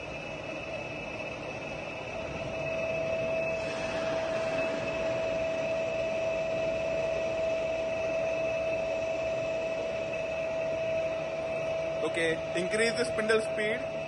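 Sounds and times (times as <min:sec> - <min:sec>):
lathe humming with high whine: 0:00.0 - 0:14.0.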